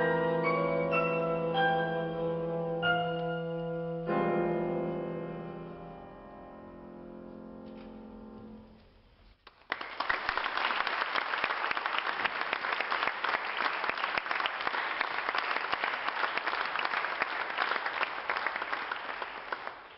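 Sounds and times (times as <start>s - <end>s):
audience applauding: 9.4s - 19.9s.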